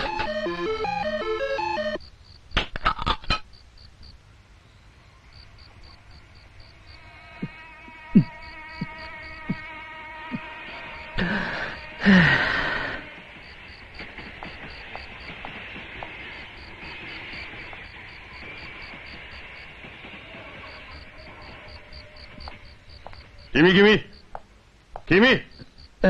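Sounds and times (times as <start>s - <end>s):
night insects chirping: 0.0s - 2.6s, 3.3s - 26.0s
person gulping a drink: 2.8s - 3.4s
loud breathy sigh: 11.2s - 13.1s.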